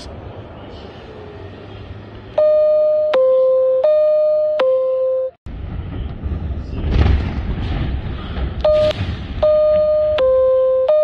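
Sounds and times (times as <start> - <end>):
electronic two-tone alarm: 2.4 - 5.4, 8.7 - 11.0
outdoor low rumble: 5.4 - 11.0.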